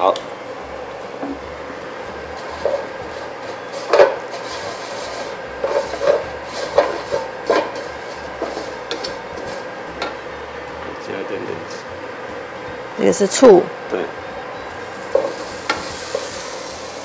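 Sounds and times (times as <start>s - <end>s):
wooden spatula scraping a wok: 2.2s - 9.8s, 14.9s - 17.0s.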